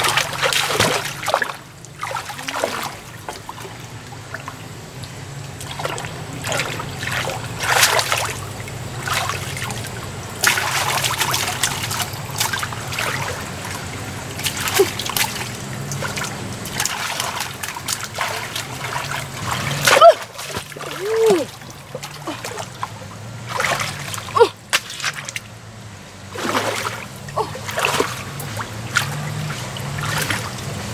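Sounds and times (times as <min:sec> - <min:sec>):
muddy water splashing: 0:00.0 - 0:30.9
steady low hum: 0:00.0 - 0:30.9.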